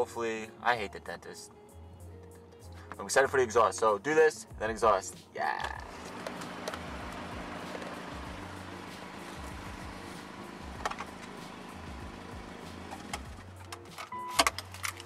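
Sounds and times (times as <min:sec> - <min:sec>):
car engine idling: 0:05.8 - 0:13.7.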